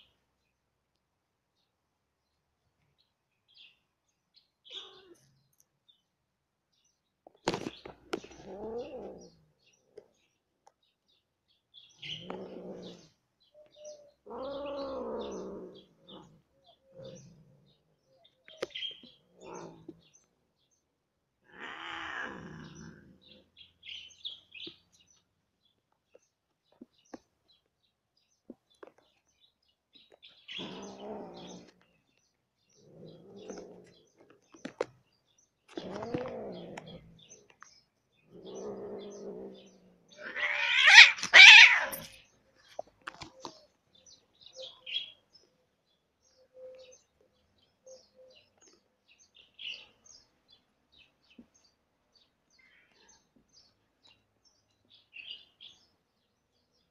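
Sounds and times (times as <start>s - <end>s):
birds chirping faintly: 0.0s - 56.9s
cats yowling: 4.7s - 5.3s, 8.3s - 9.4s, 13.8s - 17.2s, 21.5s - 23.4s, 30.5s - 31.8s, 38.4s - 42.1s.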